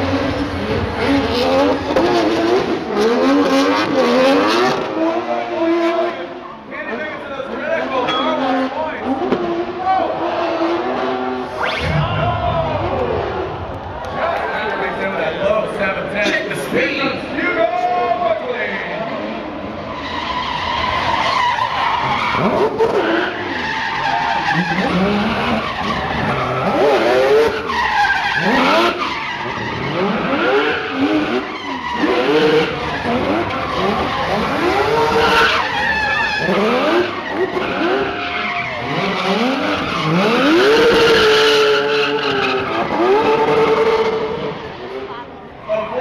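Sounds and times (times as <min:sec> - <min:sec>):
car engine revving hard: 0:00.0 - 0:06.2, 0:24.3 - 0:45.1
tyres screeching: 0:19.9 - 0:44.5.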